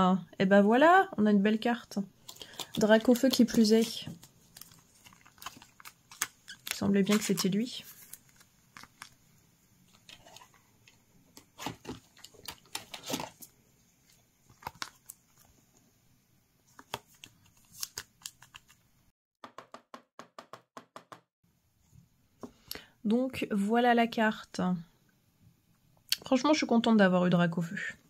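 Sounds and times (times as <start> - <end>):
plastic clicks and rustles: 4.1 - 9.2, 9.9 - 13.5, 14.1 - 15.5.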